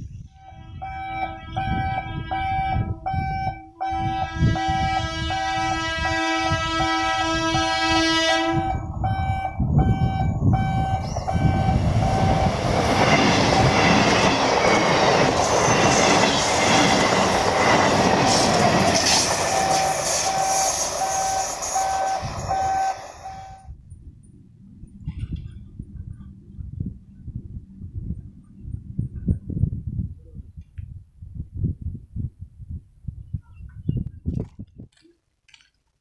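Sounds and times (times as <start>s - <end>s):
warning tone beeping: 0.4s - 5.5s, 8.6s - 12.7s, 19.5s - 23.7s
train wheels rumbling on rails: 8.4s - 29.7s.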